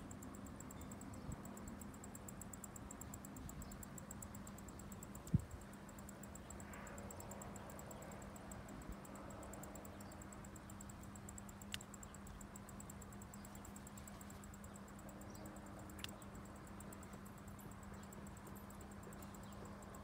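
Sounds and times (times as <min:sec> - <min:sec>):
sharp clicks: 0:11.6 - 0:12.0, 0:15.9 - 0:16.3.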